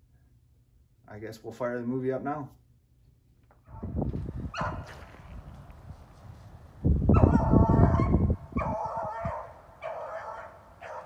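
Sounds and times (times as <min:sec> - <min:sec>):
dog baying: 0:04.6 - 0:05.0, 0:07.2 - 0:11.0.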